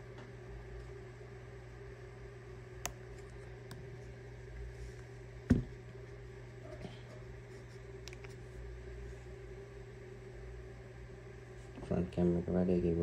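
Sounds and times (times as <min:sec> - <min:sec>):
steady low hum: 0:00.0 - 0:13.0
smartphone knocking on surface: 0:05.5 - 0:05.7.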